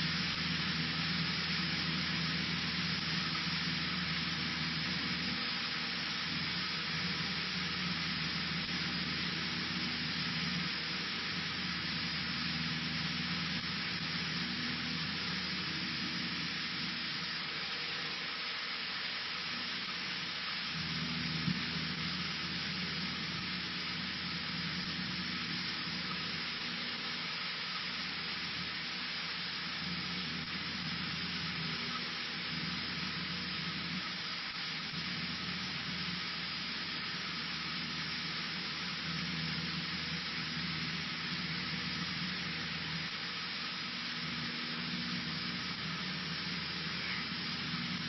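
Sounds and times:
airplane engine and propeller: 0.0 - 18.5.

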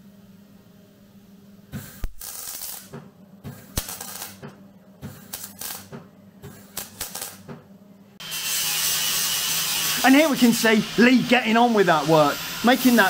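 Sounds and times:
steady low hum: 0.0 - 8.2
arc welding crackling bursts: 1.8 - 4.5, 5.1 - 7.5, 8.2 - 13.0.

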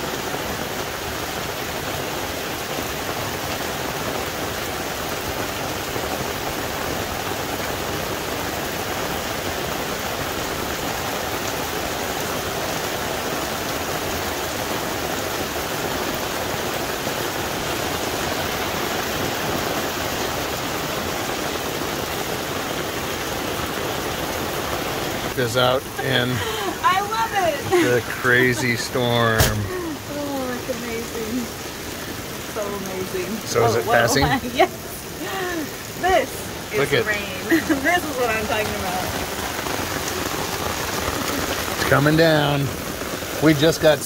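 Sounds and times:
heavy rain pouring: 0.0 - 44.0.

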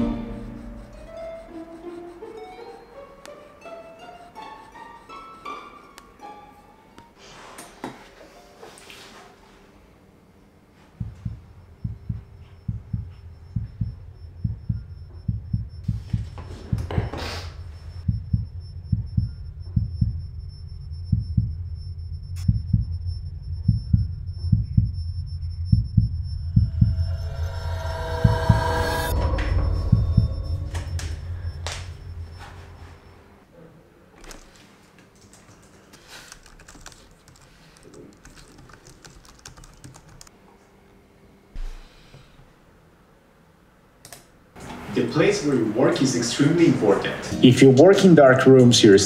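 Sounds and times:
steady low hum: 0.0 - 4.1, 9.4 - 34.0
plucked string melody: 0.0 - 6.9
heartbeat thuds: 10.9 - 33.2
whoosh: 26.0 - 33.4.

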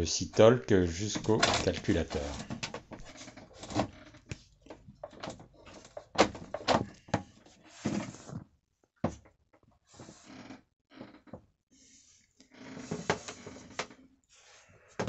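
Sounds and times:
cable rustling: 0.9 - 8.4.

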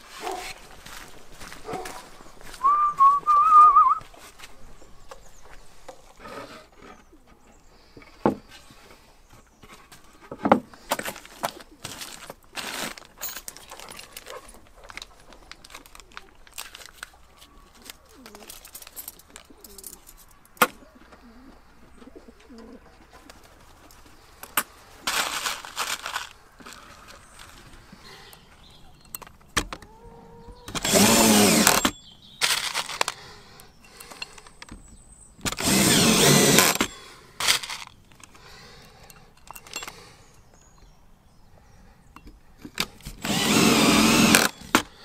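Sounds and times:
rustling: 0.0 - 28.8, 30.7 - 33.4
screws rattling in plastic tub: 30.7 - 33.2, 35.4 - 38.0, 42.8 - 44.9.

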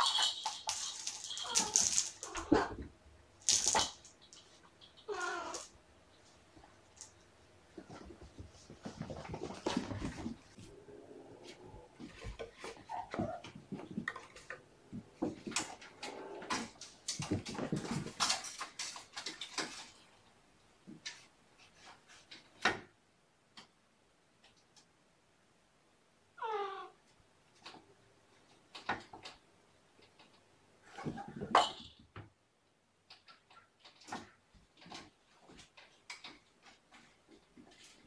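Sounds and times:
kittens playing with toys: 0.0 - 10.8, 11.4 - 20.2, 33.1 - 38.0
cat meow: 5.0 - 5.7, 26.4 - 27.0.

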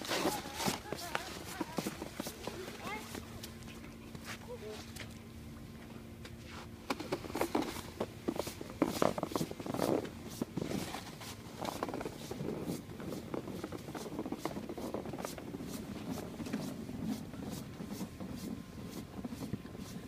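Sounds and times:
plastic sled scraping snow: 0.0 - 3.2, 6.9 - 20.0
footsteps crunching in snow: 0.0 - 5.2, 6.4 - 20.0.

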